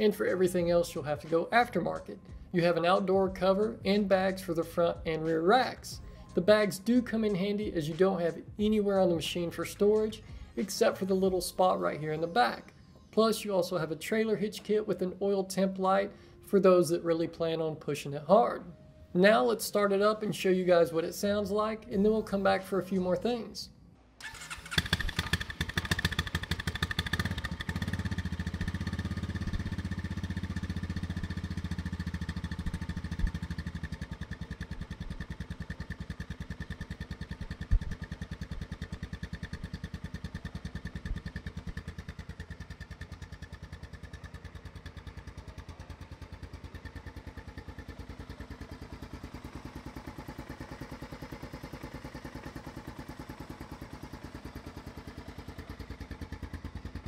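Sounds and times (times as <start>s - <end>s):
atv engine idling: 0.0s - 12.7s, 24.2s - 57.0s.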